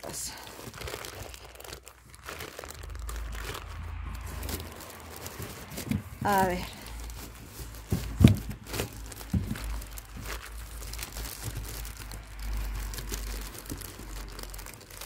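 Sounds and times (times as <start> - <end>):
plastic bag crinkling: 0.0 - 15.0
dull bump: 7.3 - 10.4.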